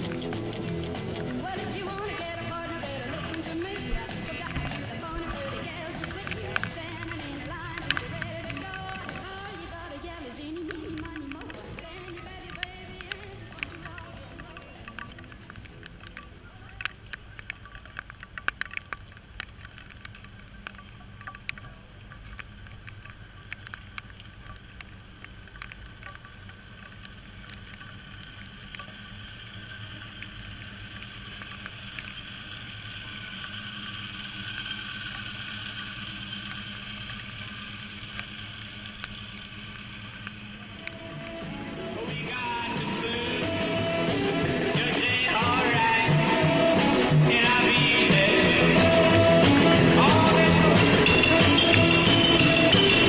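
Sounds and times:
outdoor noise: 0.0 - 53.0
vehicle engine running: 0.0 - 53.0
hiss: 27.9 - 42.0.

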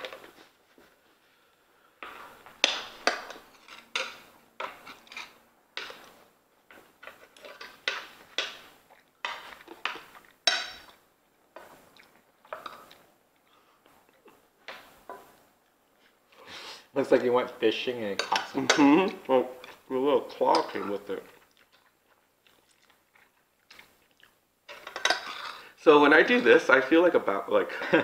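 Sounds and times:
utensils clinking on foil pan: 10.4 - 10.9, 24.7 - 25.6.

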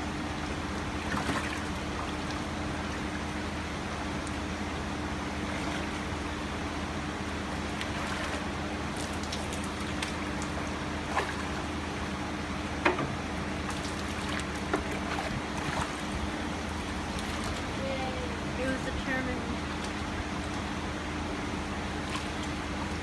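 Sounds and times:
low steady hum: 0.0 - 23.0
trickling water: 0.1 - 4.6, 7.4 - 11.9, 13.6 - 20.8
fish splashing in tub: 0.3 - 3.2, 7.5 - 11.8, 13.5 - 17.8, 21.9 - 23.0.

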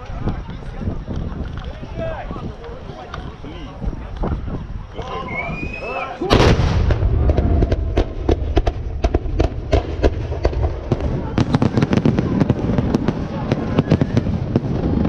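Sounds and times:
people's voices: 0.0 - 15.0
low rumble: 6.3 - 11.4
firework bangs and cracks: 6.3 - 15.0
firework boom: 6.3 - 15.0.

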